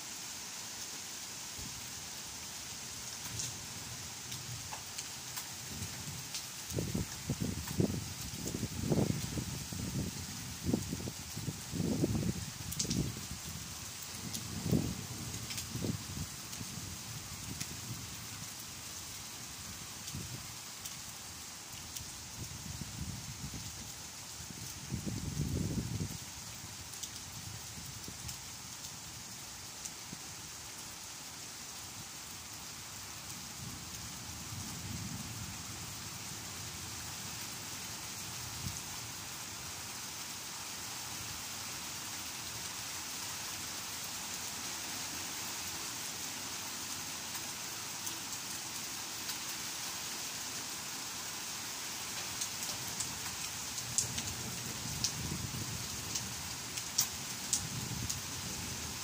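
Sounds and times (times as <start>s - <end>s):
rain on leaves: 0.0s - 59.0s
single raindrops ticking: 12.7s - 13.0s, 52.3s - 54.4s, 56.1s - 58.3s.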